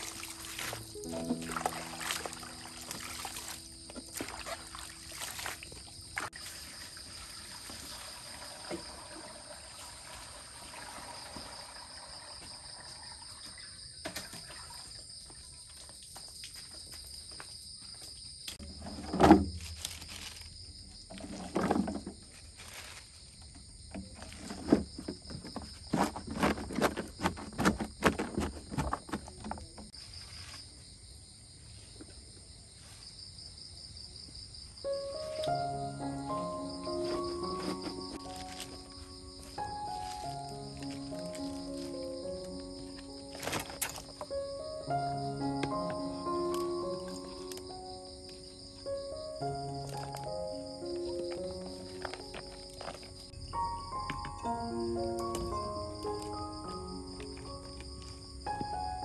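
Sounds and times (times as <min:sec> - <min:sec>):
cabbage squelching by hand: 0:00.0 - 0:06.4
insects trilling: 0:00.0 - 0:59.0.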